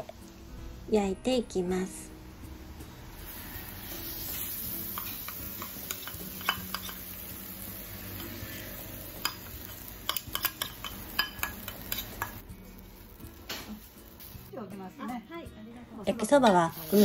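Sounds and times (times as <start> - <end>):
batter sizzling on a griddle: 3.2 - 14.9, 16.4 - 17.0
metal bowl clinking: 4.9 - 7.2, 9.2 - 12.4.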